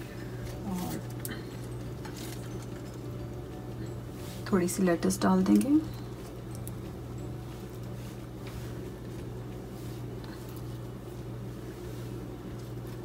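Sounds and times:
low mechanical hum: 0.0s - 13.0s
soft lettuce rustles: 7.3s - 13.0s.

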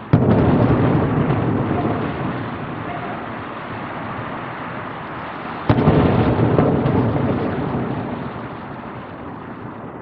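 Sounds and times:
firework shell boom: 5.6s - 8.2s.

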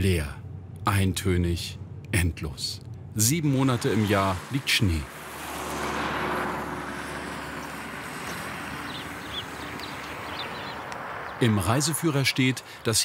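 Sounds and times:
steady low hum: 0.0s - 5.2s
minibus passing: 0.0s - 13.0s.

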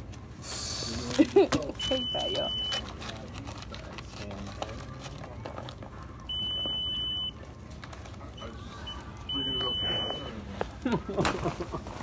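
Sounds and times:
store background noise: 0.0s - 12.0s
high electronic beep: 9.3s - 10.3s.

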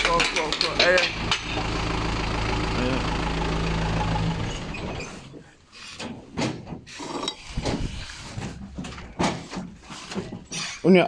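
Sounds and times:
truck engine idling: 0.0s - 5.8s.

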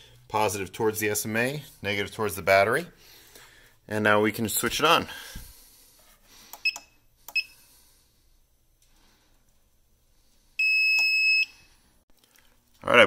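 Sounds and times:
loud steady beep: 10.6s - 11.6s.

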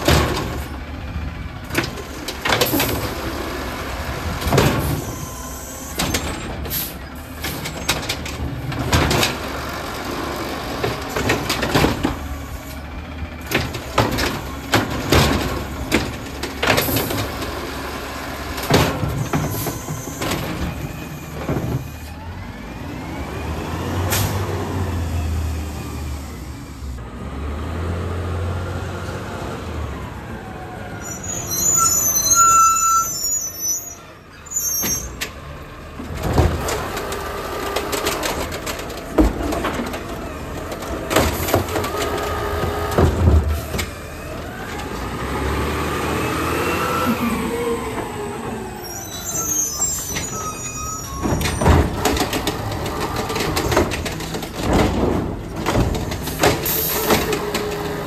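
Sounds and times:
high brake squeals: 4.8s - 7.1s, 19.2s - 20.4s, 31.0s - 35.3s, 48.2s - 51.8s
bins and arm banging: 51.2s - 58.0s.

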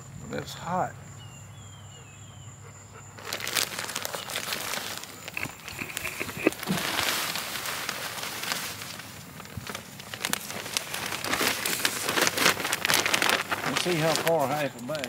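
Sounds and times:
plastic bag crinkling: 3.2s - 15.0s
soil pouring into plastic tub: 3.3s - 15.0s.

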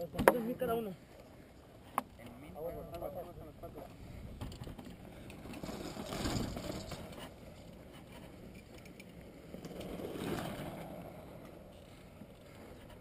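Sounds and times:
wind noise on microphone: 4.0s - 7.3s
bike tyres on gravel: 5.0s - 13.0s.

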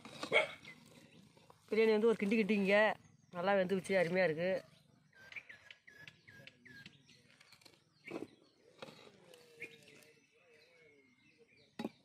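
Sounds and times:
faint bird calls: 4.6s - 11.6s.

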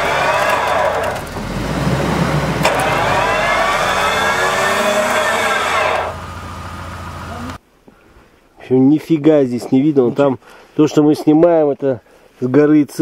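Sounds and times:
electric winch whining: 0.0s - 7.6s.

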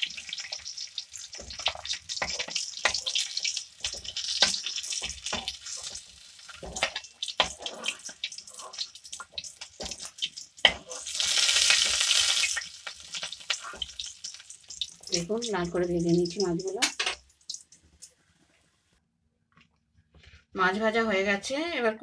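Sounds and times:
fish sizzling in hot oil: 0.0s - 18.0s
metal spatula scraping pan: 1.4s - 8.9s, 9.8s - 12.0s.

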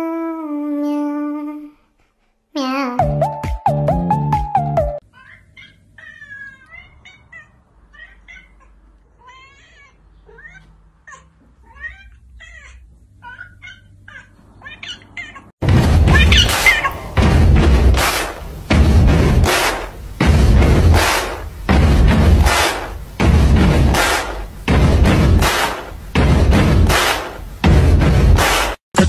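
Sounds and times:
music: 3.0s - 5.0s, 15.6s - 29.0s
cat chirping and meowing: 5.0s - 15.5s, 16.1s - 17.0s.

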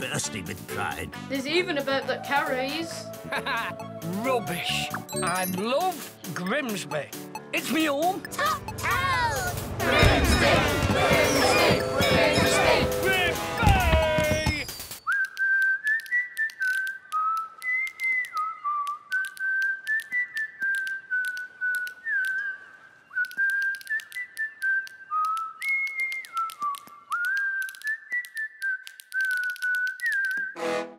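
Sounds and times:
light clicking beat: 0.0s - 22.4s
whistled melody: 0.0s - 30.9s.

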